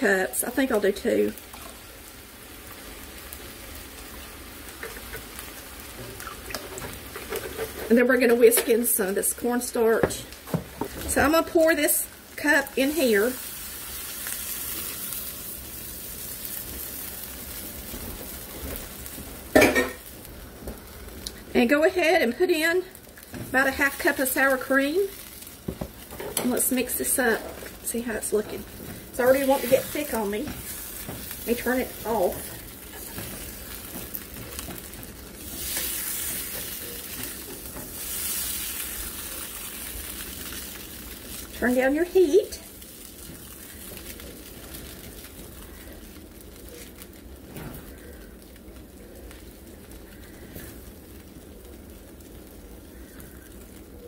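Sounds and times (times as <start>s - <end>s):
meat sizzling in a skillet: 0.0s - 54.0s
metal spoon scraping skillet: 6.6s - 8.8s.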